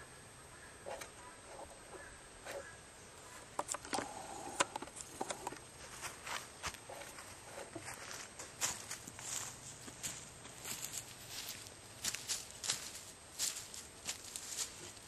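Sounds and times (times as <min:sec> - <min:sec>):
footsteps through dry leaves: 0:05.8 - 0:15.0.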